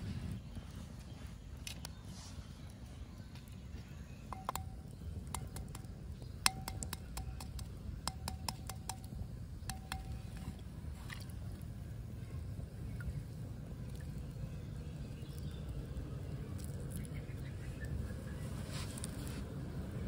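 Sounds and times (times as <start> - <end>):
eggs clicking against pot: 4.3 - 10.4.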